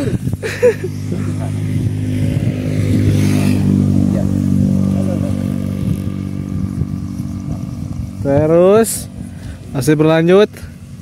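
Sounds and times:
vehicle engine idling: 3.6 - 11.0.

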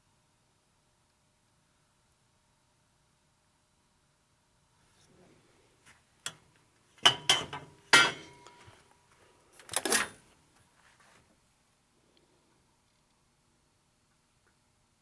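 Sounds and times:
metallic knocks and clinks: 7.0 - 8.6
metal ringing tone: 7.1 - 8.6.

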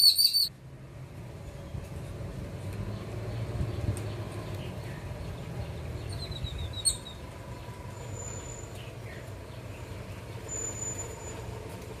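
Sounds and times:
faint bird chirps: 0.0 - 0.5
thin high whistles: 0.0 - 0.5, 10.5 - 11.5.

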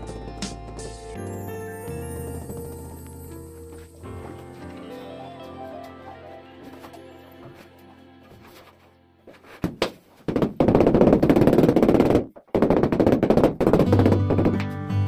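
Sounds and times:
background music: 0.0 - 9.7, 13.8 - 15.0.

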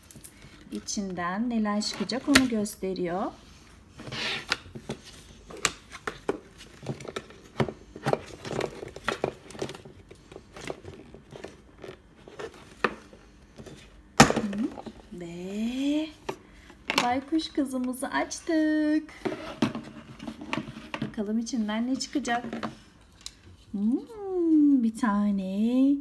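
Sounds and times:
crinkling: 4.0 - 15.0.

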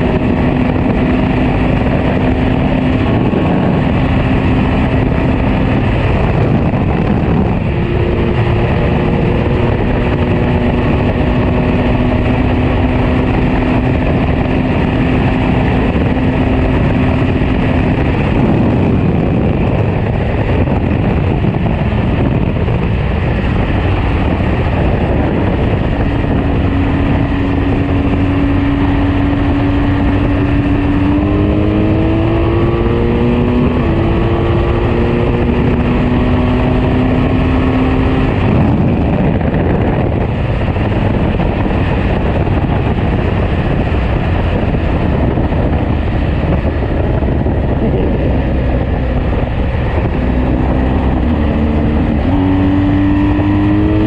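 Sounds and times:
motorcycle engine running: 0.0 - 54.0
wind rush over microphone: 0.0 - 54.0.

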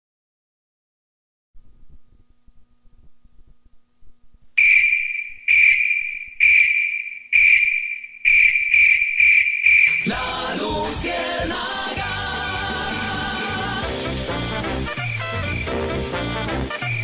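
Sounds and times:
faint hum: 1.6 - 10.2
high electronic ping: 4.6 - 10.1, 15.0 - 15.8.

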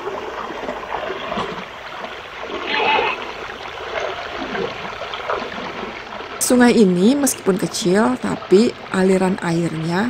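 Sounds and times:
child wading and splashing: 0.0 - 6.4
shallow river flowing: 0.0 - 10.0.

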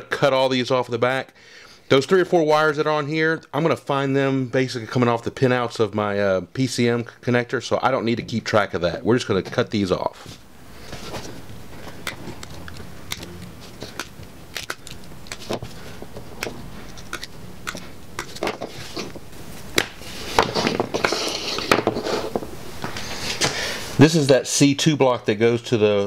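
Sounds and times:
rustle of wires being handled: 10.2 - 12.8
wire cutters snipping wires: 11.9 - 15.7, 16.3 - 19.1.

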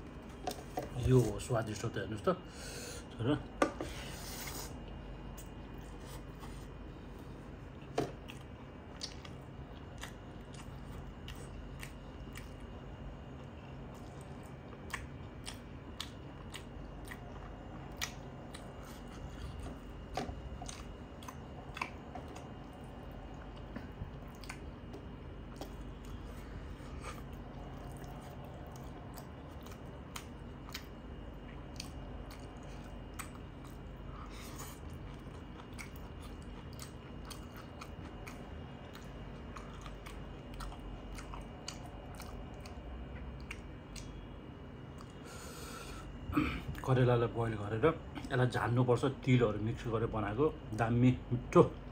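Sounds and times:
faint steady hum: 0.0 - 51.9
close chewing with clicks and smacks: 4.8 - 44.2, 44.9 - 45.2.

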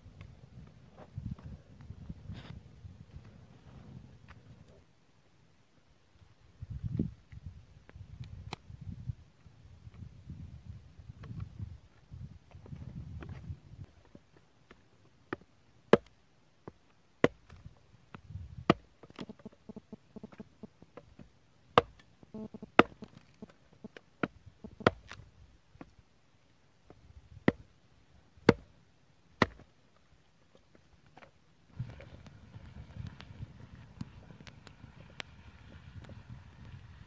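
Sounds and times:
hatchet chopping wood: 15.3 - 16.2, 17.2 - 17.6, 18.6 - 19.3, 21.0 - 23.3, 24.2 - 25.2, 27.4 - 27.7, 28.4 - 28.7, 29.4 - 29.7.

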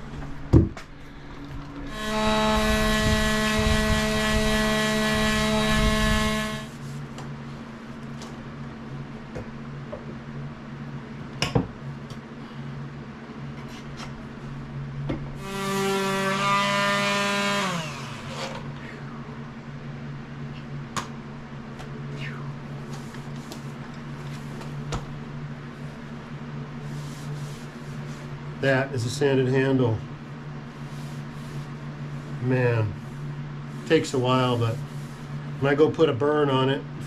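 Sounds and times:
low hum: 0.0 - 36.0
power tool motor running: 1.9 - 6.8, 15.4 - 18.7.

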